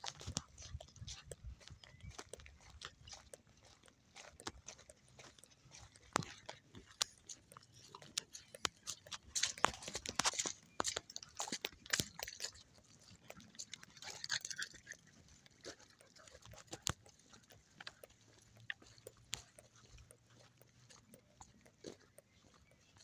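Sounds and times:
dogs making quiet sounds: 0.0 - 10.3, 11.4 - 23.0
footsteps on gravel: 0.0 - 23.0.

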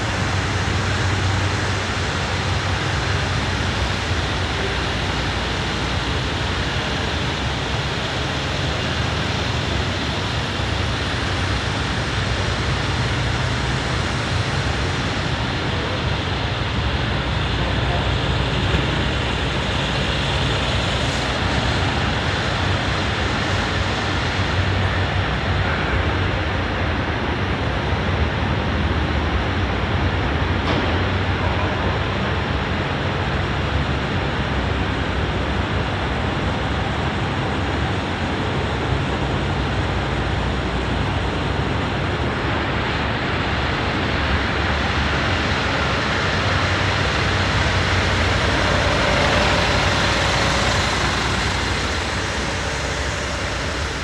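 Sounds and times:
diesel truck engine idling: 46.3 - 54.0.

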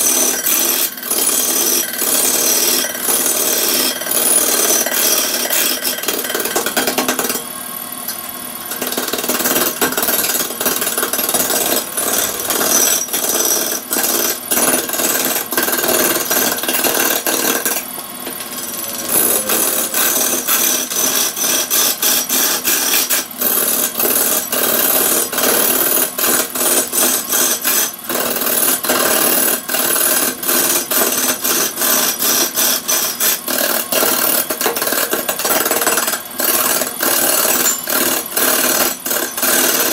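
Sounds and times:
chisel scraping spinning wood: 8.8 - 35.4.

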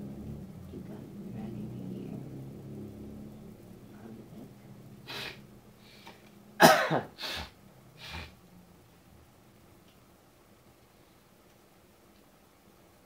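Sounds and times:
person coughing: 6.6 - 7.5.

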